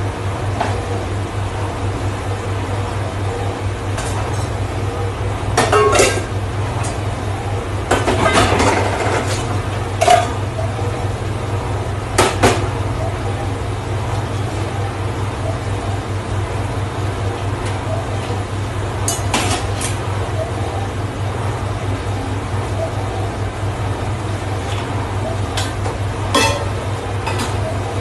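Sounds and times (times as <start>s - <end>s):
low hum of kitchen machinery: 0.0s - 28.0s
steel pots clanking: 26.3s - 27.4s.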